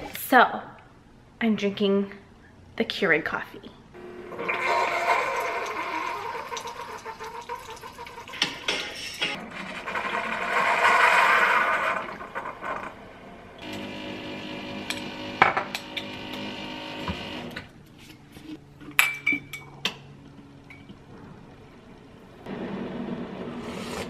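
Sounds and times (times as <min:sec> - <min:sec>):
coffee maker humming: 0:04.0 - 0:08.8, 0:13.6 - 0:17.6.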